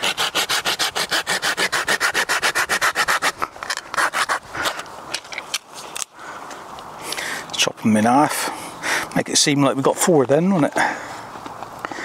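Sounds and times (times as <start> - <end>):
hand saw cutting wood: 0.0 - 4.9.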